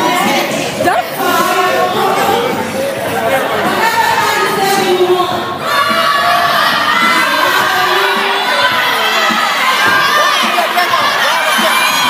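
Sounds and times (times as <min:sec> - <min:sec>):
crowd screaming and cheering: 0:03.6 - 0:12.0.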